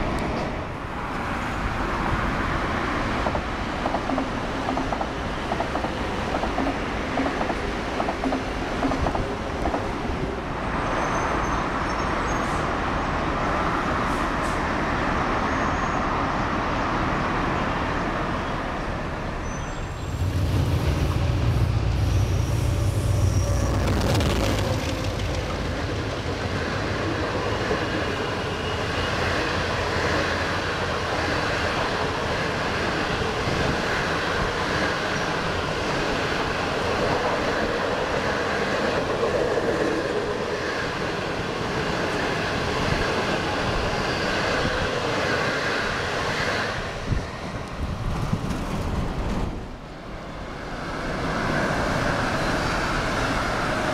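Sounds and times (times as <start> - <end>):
electric train rolling past: 0.0 - 53.9
passenger coaches rolling past: 0.0 - 53.9
diesel locomotive rumble: 19.1 - 29.1.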